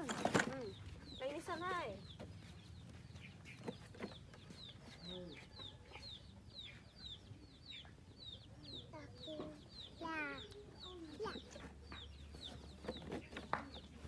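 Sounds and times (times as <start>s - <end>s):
chickens clucking: 0.0s - 14.0s
chicks chirping: 0.6s - 14.0s.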